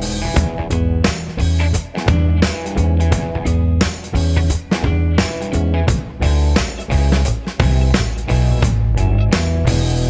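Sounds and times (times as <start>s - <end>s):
plucked guitar music with beat: 0.0s - 10.0s.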